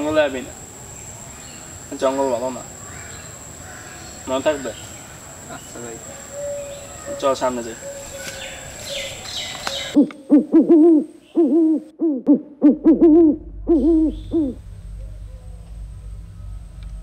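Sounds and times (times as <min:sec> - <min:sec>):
insect hum with high whine: 0:00.0 - 0:17.0
short hooting calls: 0:06.0 - 0:16.7
low rumble: 0:12.3 - 0:17.0.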